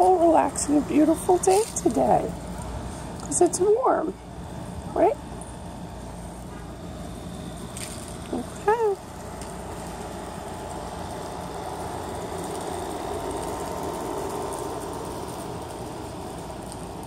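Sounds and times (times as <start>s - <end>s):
distant vehicle rumble: 0.0s - 17.0s.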